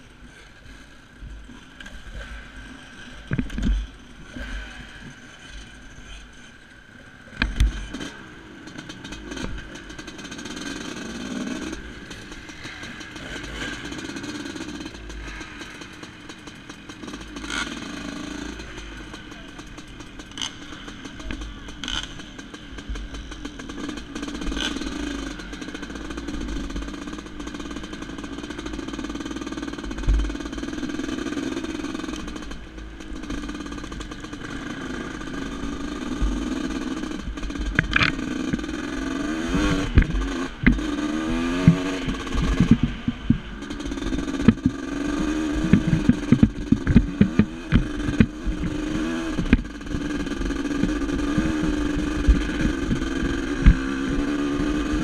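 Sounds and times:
dirt bike engine revving: 0:07.3 - 0:55.0
wind rumble on microphone: 0:41.4 - 0:43.6.

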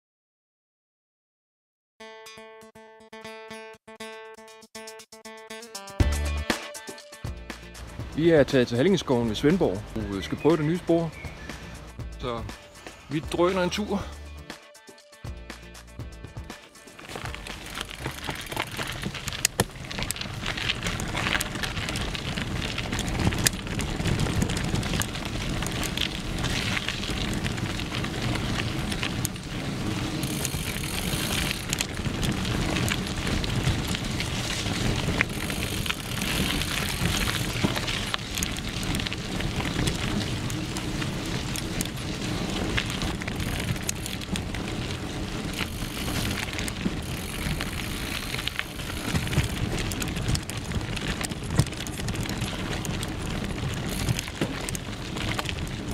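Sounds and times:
bike rattling over bumps: 0:07.8 - 0:12.4, 0:16.4 - 0:55.9
bike tyres crunching on dirt: 0:07.8 - 0:14.2, 0:16.6 - 0:55.9.

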